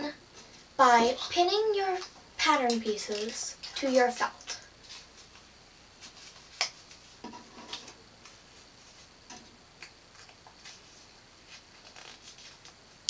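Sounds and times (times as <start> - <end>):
paper and felt rustling: 4.9 - 9.1, 10.6 - 12.6.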